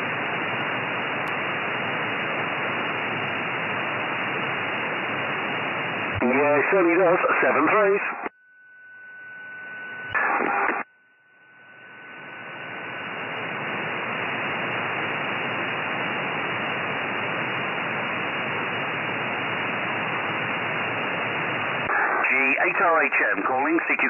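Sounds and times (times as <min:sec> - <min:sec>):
radio receiver hiss: 0:00.0 - 0:24.0
brief radio signal burst: 0:06.2 - 0:13.2, 0:21.8 - 0:24.0.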